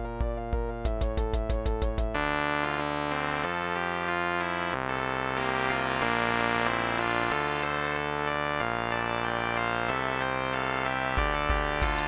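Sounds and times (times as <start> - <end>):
sustained synthesizer chords: 0.0 - 12.0.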